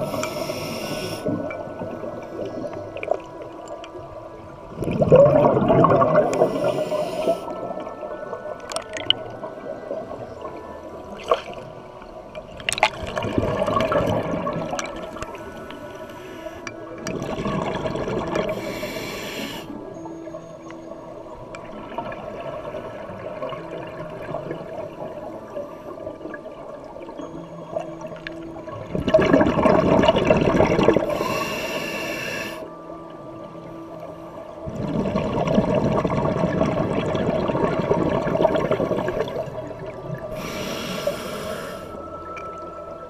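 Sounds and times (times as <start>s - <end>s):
regulator hiss: 0.0s - 1.4s, 6.3s - 7.6s, 15.4s - 16.7s, 18.5s - 19.8s, 31.1s - 32.7s, 40.3s - 42.0s
exhaled bubbles underwater: 0.0s - 15.9s, 16.8s - 19.1s, 21.6s - 31.6s, 34.5s - 43.0s.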